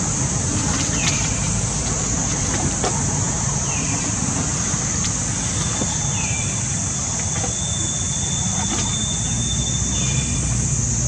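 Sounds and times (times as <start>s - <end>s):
thin high whistle-like tone: 7.4s - 10.3s.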